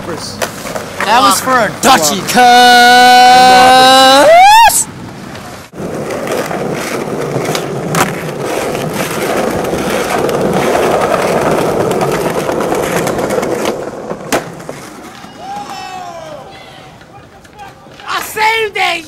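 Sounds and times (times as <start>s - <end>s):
skateboard clacks: 0.0s - 1.4s, 5.3s - 19.0s
skateboard wheels rolling on concrete: 0.0s - 19.0s.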